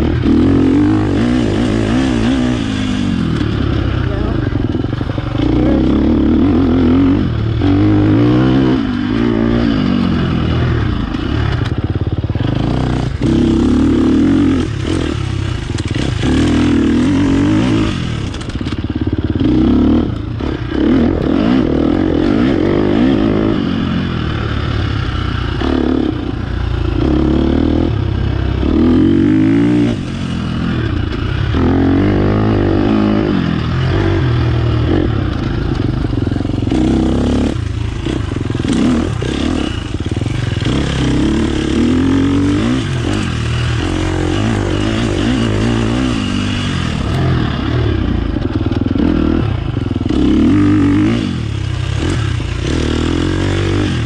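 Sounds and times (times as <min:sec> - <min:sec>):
dirt bike engine revving: 0:00.0 - 0:54.0.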